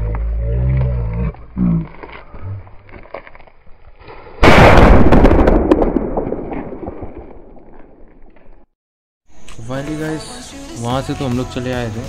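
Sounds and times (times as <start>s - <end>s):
loud firecracker bang: 4.4s - 8.0s.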